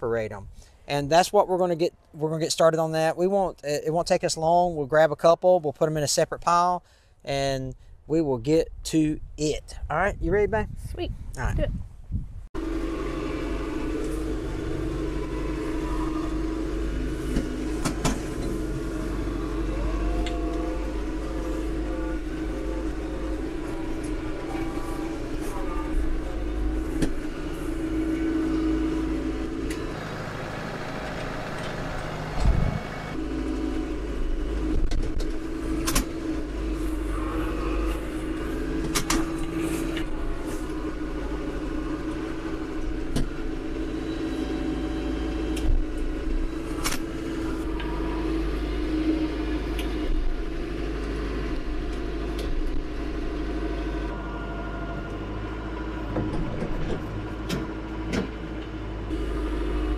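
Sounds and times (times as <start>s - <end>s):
tractor diesel engine running: 12.6s - 59.9s.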